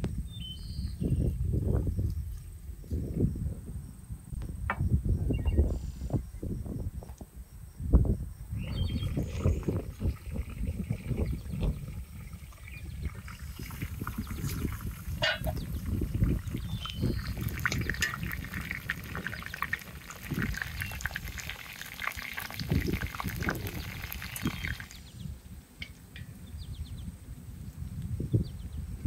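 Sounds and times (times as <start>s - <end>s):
wind rumble on microphone: 0.0s - 29.0s
chicken and onions sizzling: 13.4s - 24.9s.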